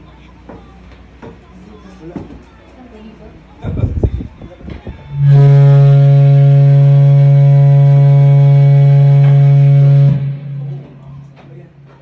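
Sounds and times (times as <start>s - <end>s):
low amplified drone: 3.6s - 12.0s.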